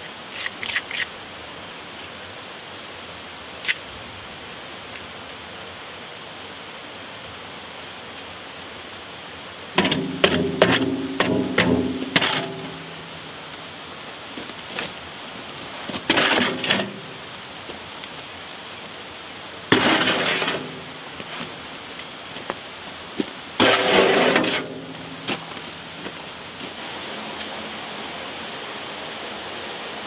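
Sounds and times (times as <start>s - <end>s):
faint steady hiss: 0.0s - 30.0s
gritty trowel scrape: 9.8s - 13.2s, 15.7s - 17.3s, 19.7s - 21.6s, 23.2s - 26.4s
trowel clanking in metal wheelbarrow: 9.8s - 13.2s, 15.8s - 17.3s, 19.7s - 21.6s, 23.6s - 26.2s.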